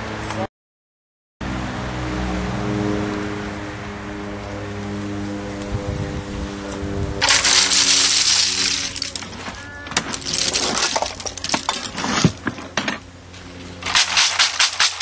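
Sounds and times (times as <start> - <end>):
mussel shells clattering in crate: 7.2 - 13.0, 13.8 - 15.0.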